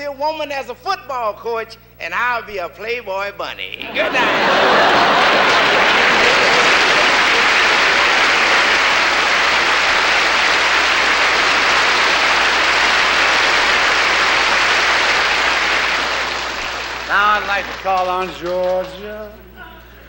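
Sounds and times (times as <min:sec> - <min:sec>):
large audience applauding: 0:03.8 - 0:19.3.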